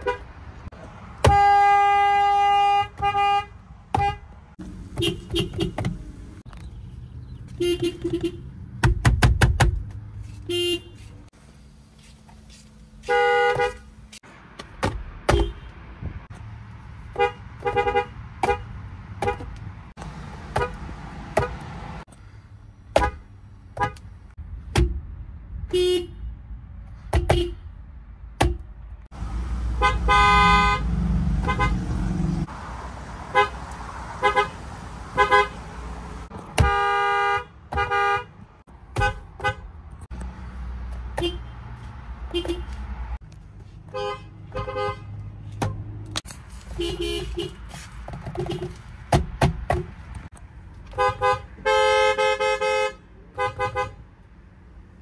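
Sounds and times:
car horns honking: 0.0 - 0.5, 1.2 - 6.0, 6.7 - 8.7, 10.3 - 11.2, 13.0 - 14.0, 15.2 - 15.8, 17.1 - 19.6, 20.5 - 21.8, 22.9 - 24.1, 25.7 - 26.3, 27.1 - 27.7, 29.6 - 32.4, 33.3 - 39.8, 41.1 - 43.2, 43.8 - 45.8, 46.7 - 48.8, 50.9 - 54.1.

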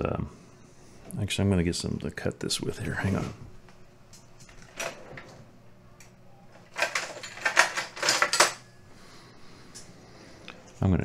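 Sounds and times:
quick rattling clicks and clatter: 6.7 - 8.6
small hard parts clicking: 6.7 - 8.6.

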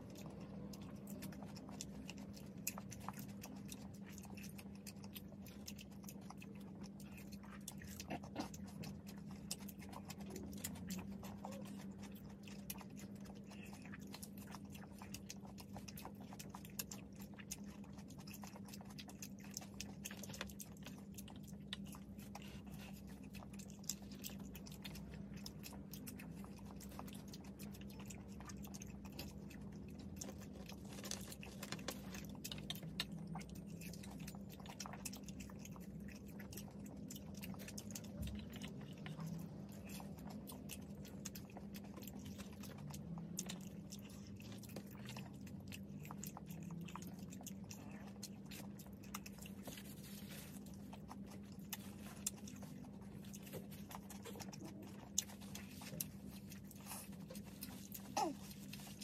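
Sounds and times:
people chewing french fries: 0.0 - 59.0
steady low hum: 0.0 - 59.0.

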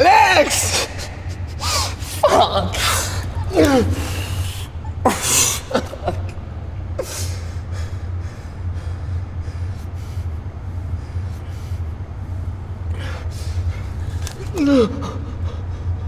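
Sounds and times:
man sobbing and gasping: 0.0 - 9.4, 13.2 - 16.0
low steady hum: 0.0 - 16.0.

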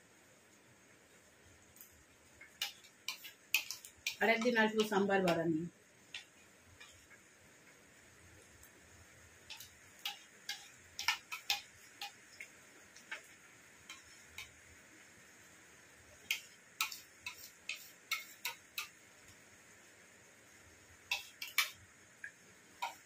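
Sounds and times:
spoons clicking on plates: 1.8 - 5.4, 9.4 - 14.6, 16.2 - 19.0, 21.1 - 21.8, 22.8 - 23.0.

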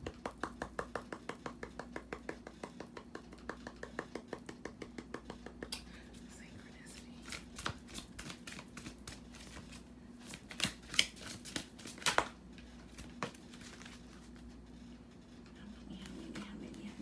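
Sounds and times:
faint steady hum: 0.0 - 17.0
cards shuffling: 7.0 - 14.6.

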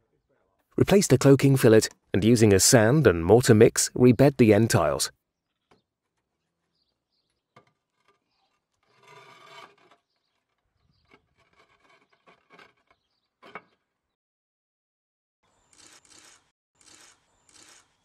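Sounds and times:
trowel scraping mortar: 7.7 - 13.8.

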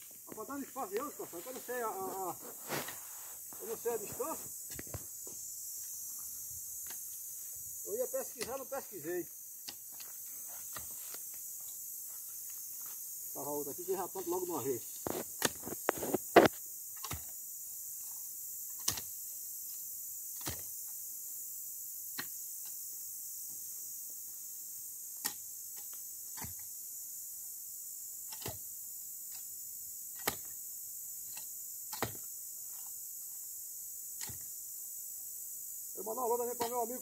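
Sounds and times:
insect hiss: 0.0 - 37.0
post-hole digger thudding into soil: 15.0 - 17.4, 20.3 - 20.7, 25.2 - 26.7, 28.3 - 28.7, 30.1 - 30.6, 31.4 - 32.3, 34.2 - 34.5.

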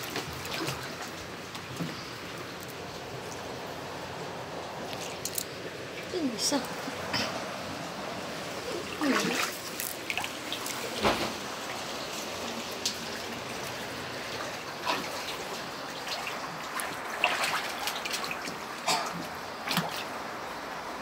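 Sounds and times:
floodwater splashing: 0.0 - 20.8
steady hiss of water: 0.0 - 21.0.

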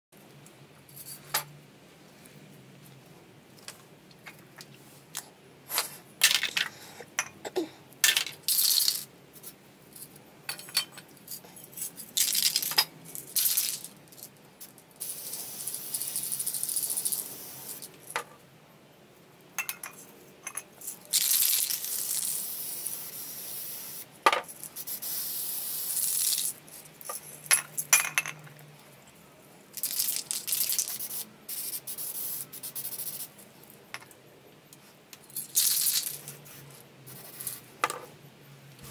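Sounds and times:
spray can ball rattling: 8.0 - 9.1, 11.8 - 14.3, 15.0 - 18.2, 20.8 - 26.6, 29.8 - 33.3, 35.3 - 36.6
spray paint hissing: 8.5 - 9.0, 15.0 - 17.9, 21.2 - 24.1, 24.8 - 26.6, 29.8 - 33.3.

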